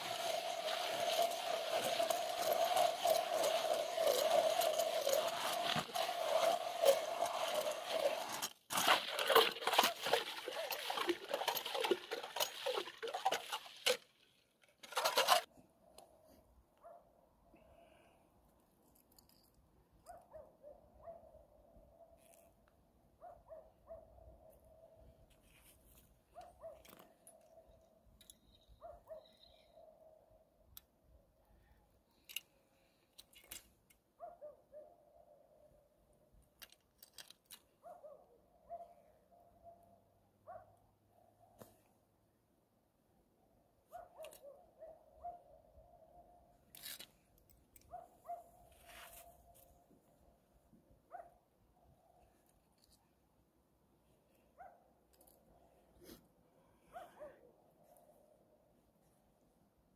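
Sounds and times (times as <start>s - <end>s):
ice auger crunching through ice: 0.0s - 15.5s.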